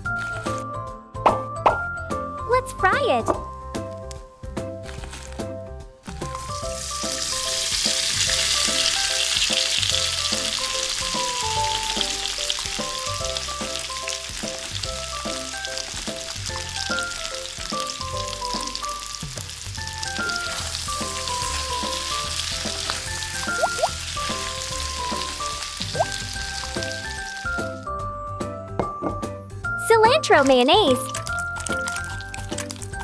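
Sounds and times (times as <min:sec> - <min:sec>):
light melodic background music: 0:00.0 - 0:33.0
hot oil sizzling: 0:06.1 - 0:28.0, 0:30.9 - 0:33.0.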